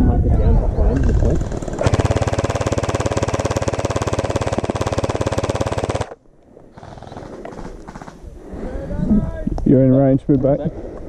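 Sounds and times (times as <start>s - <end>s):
gel blaster firing full auto: 1.0s - 6.2s.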